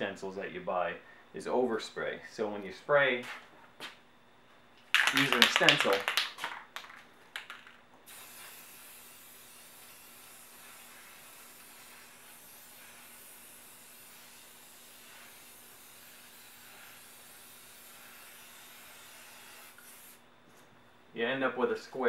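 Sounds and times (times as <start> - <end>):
aerosol spray can hissing: 8.1 - 20.2.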